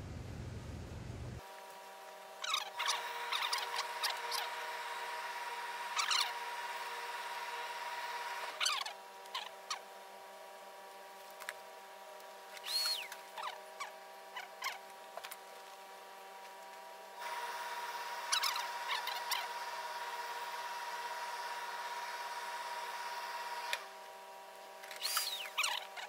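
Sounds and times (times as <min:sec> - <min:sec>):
shears snipping and squeaking: 0:02.4 - 0:04.6, 0:12.5 - 0:15.4, 0:24.8 - 0:26.0
steam iron hissing: 0:12.6 - 0:13.1, 0:25.0 - 0:25.6
steam spurts: 0:25.0 - 0:25.5.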